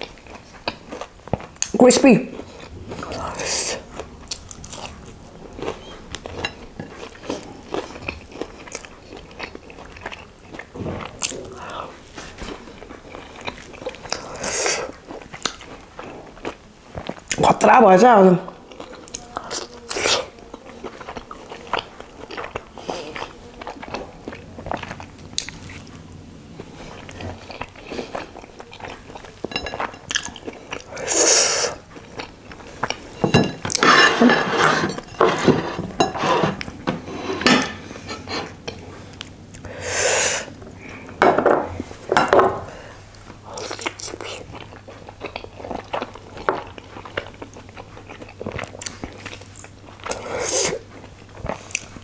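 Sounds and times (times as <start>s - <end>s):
chewing soft food: 0.0s - 1.8s, 2.4s - 17.5s, 18.4s - 33.8s, 42.8s - 52.0s
airy mouth sounds: 2.6s - 4.5s, 30.8s - 31.9s, 50.1s - 50.9s.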